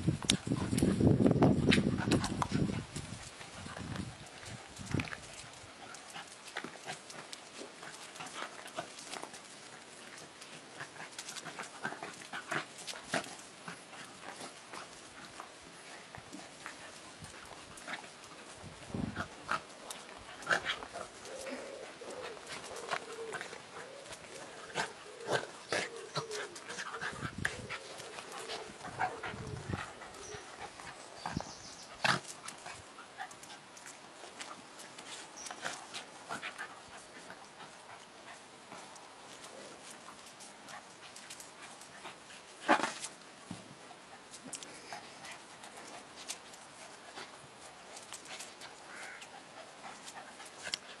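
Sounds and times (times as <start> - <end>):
dogs scuffling: 0.4 - 51.0
dogs growling and grunting: 19.1 - 30.7.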